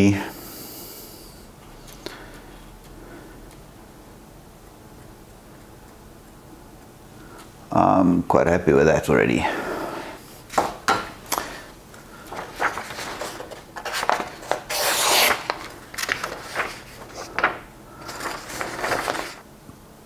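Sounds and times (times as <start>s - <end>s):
paper rustling: 12.2s - 19.4s
scraper slicing paper: 12.4s - 17.4s.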